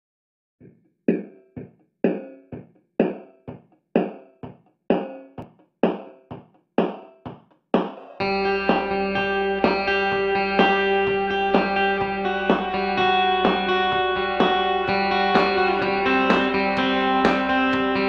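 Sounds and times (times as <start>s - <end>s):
plucked chord music: 8.2s - 18.0s.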